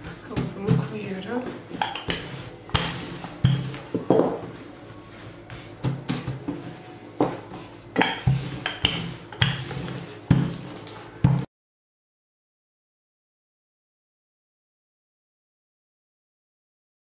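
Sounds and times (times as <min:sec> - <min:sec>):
rolling pin knocking on worktop: 0:01.8 - 0:04.5.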